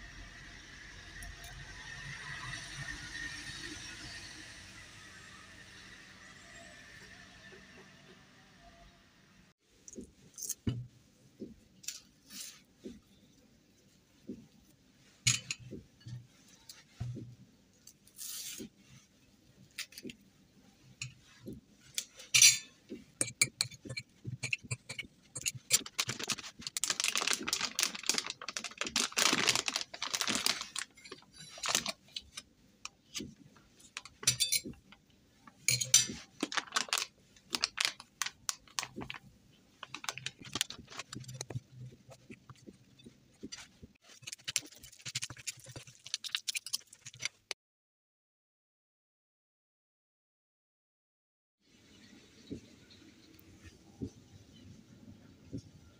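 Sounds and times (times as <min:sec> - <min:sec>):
fork clinking and scraping bowl: 0:15.3 - 0:15.7, 0:22.0 - 0:26.2, 0:34.0 - 0:34.8, 0:35.7 - 0:36.2, 0:40.4 - 0:47.4.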